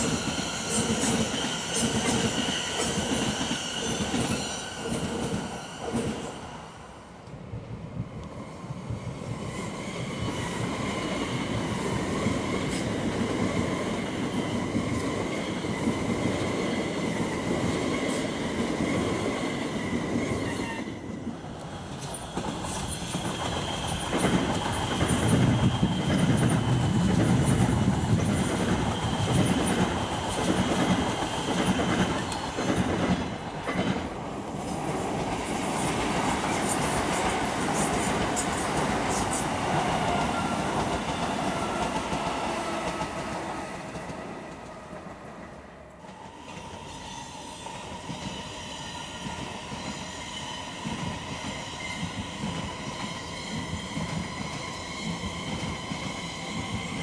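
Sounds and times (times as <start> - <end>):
electric train whine: 0.0 - 57.0.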